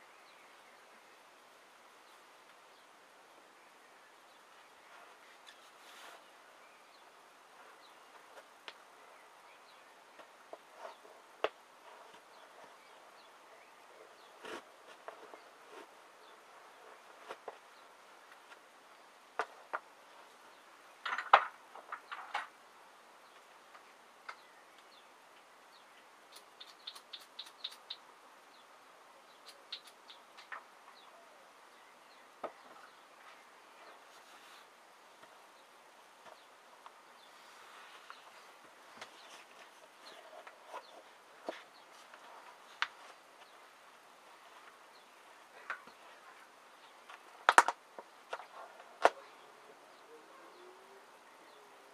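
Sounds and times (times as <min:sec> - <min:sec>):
faint steady hiss: 0:00.0 - 0:51.9
high ticks: 0:26.3 - 0:28.0, 0:29.4 - 0:30.6.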